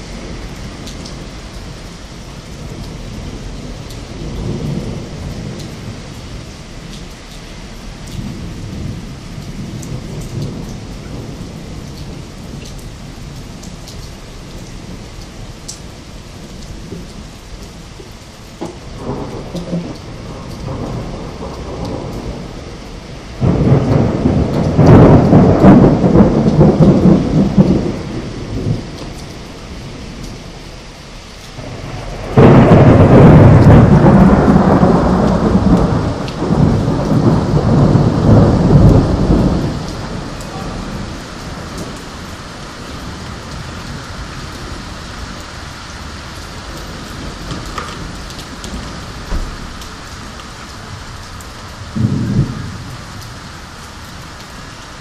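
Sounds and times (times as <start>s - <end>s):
loud thunderclaps: 0.0s - 7.1s, 7.9s - 13.8s, 18.6s - 30.5s, 31.6s - 54.3s
low thunder rumble: 0.0s - 30.9s, 31.6s - 55.0s.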